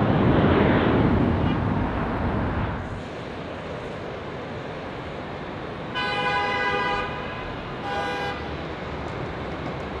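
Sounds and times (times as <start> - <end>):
distant jet engine noise: 0.0 - 10.0
vehicle horn honking: 6.0 - 8.5.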